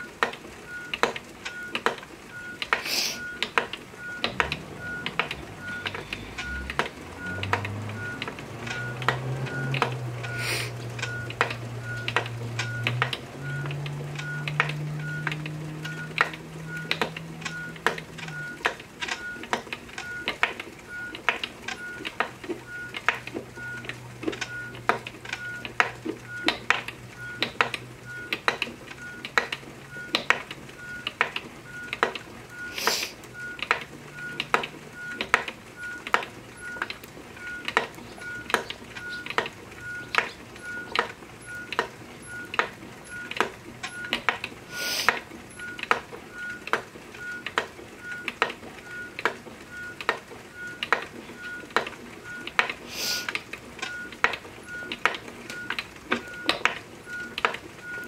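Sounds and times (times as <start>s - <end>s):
spinning wheel clicking: 2.6s - 32.8s.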